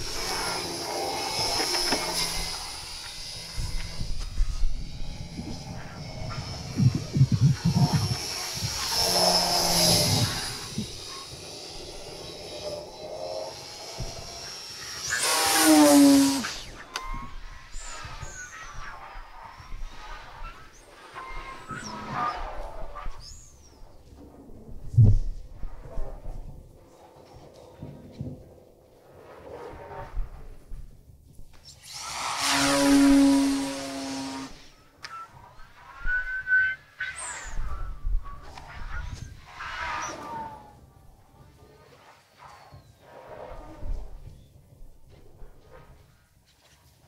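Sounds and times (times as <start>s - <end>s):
glider passing with whistle: 0.0s - 23.7s, 31.9s - 41.0s.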